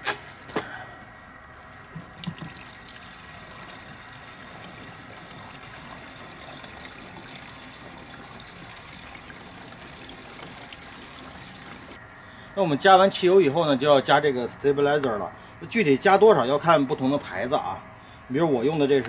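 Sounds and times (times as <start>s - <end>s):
gasoline trickling into metal tank: 1.8s - 12.0s.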